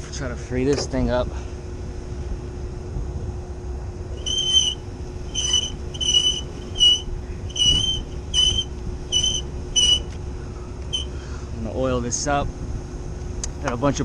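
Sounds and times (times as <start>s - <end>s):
fan shaft squeaking: 4.0s - 12.5s.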